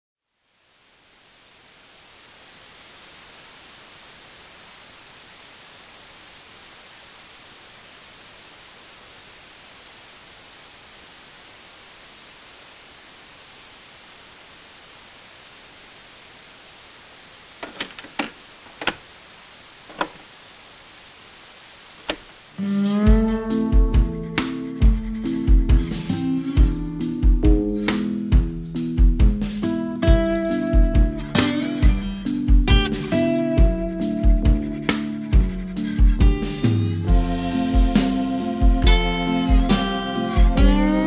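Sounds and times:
static hiss: 0.2s - 41.0s
sharp crackling pops: 11.6s - 22.6s.

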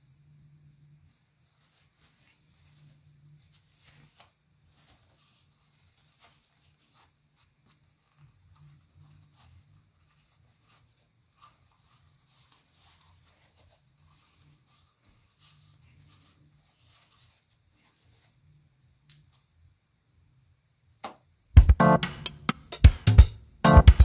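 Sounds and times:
toilet paper crinkling: 1.4s - 18.4s.

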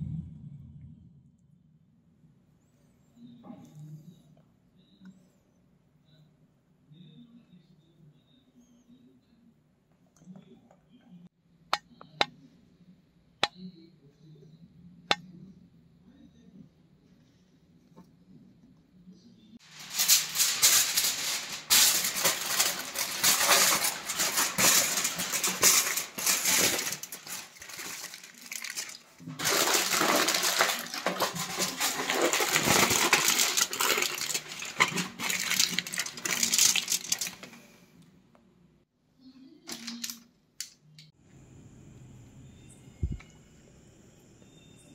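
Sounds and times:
aluminium foil crinkling: 19.6s - 37.7s, 39.7s - 40.7s.

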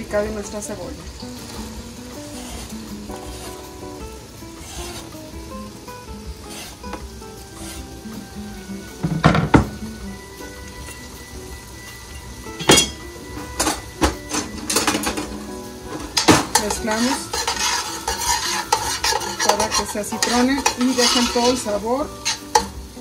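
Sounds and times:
onion sizzling in hot oil: 0.0s - 23.0s
metal spoon scraping a pot: 2.3s - 3.6s, 4.6s - 5.1s, 7.6s - 8.0s, 16.0s - 22.8s.

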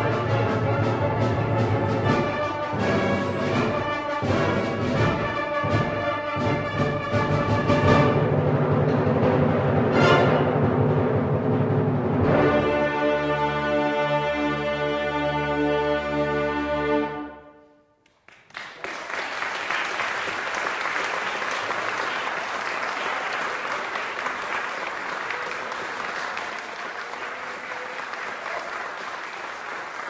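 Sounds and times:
audience applause: 18.1s - 30.0s.

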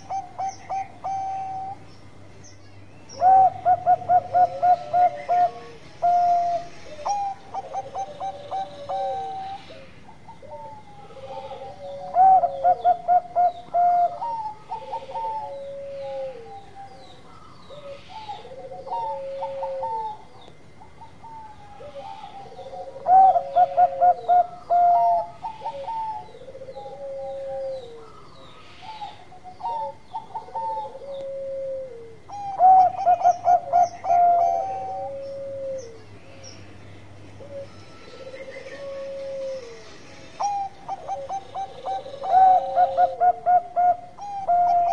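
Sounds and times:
dove cooing song: 0.0s - 2.0s, 3.1s - 44.9s.

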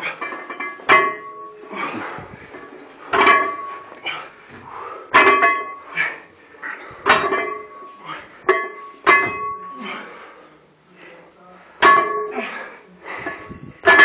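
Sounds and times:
barbell plates clanking on floor: 0.0s - 6.2s, 6.9s - 9.8s, 11.8s - 12.6s, 13.2s - 14.0s
heavy hissing breaths: 1.7s - 3.2s, 4.0s - 5.2s, 5.8s - 7.1s.

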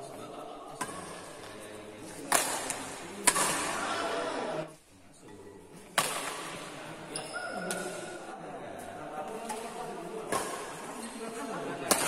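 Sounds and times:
racket hitting shuttlecock: 0.8s - 1.4s, 2.2s - 4.2s, 5.9s - 8.2s, 9.3s - 11.0s.

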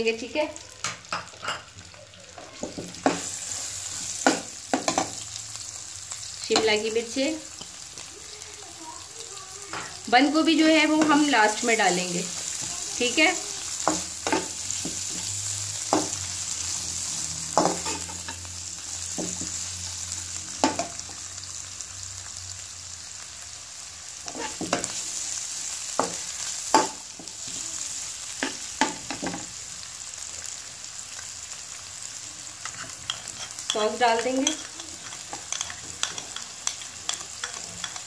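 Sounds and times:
vegetables sizzling in oil: 0.0s - 38.0s
metal spatula scraping pan: 13.8s - 18.5s, 24.3s - 25.0s, 32.6s - 38.0s.

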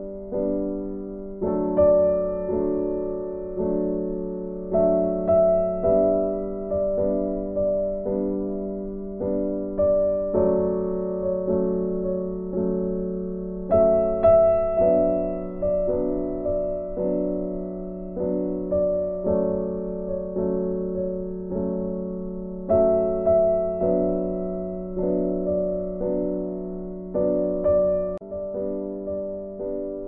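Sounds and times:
piano chords: 0.0s - 30.0s.

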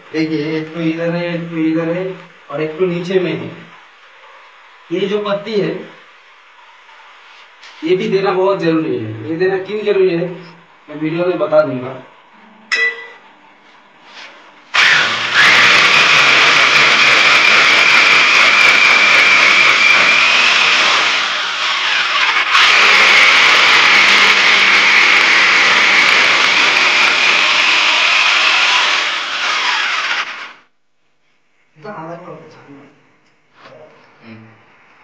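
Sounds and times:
hammer drill boring into concrete: 14.7s - 30.6s.

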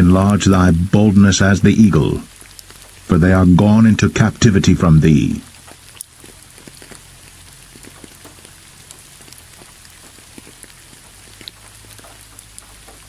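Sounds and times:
rain falling on a surface: 0.0s - 13.0s
single raindrop ticks: 2.3s - 3.1s, 5.5s - 13.0s.

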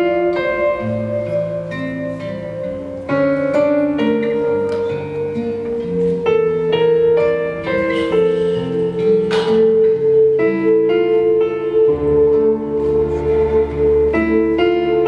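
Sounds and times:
instrumental music: 0.0s - 15.0s
rushing swell: 12.1s - 15.0s.

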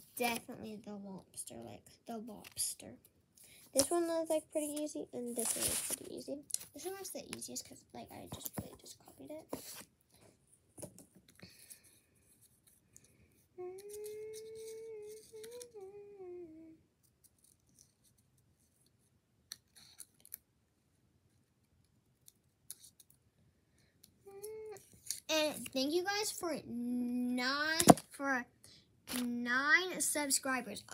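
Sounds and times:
child humming: 13.6s - 16.8s, 24.3s - 24.8s.

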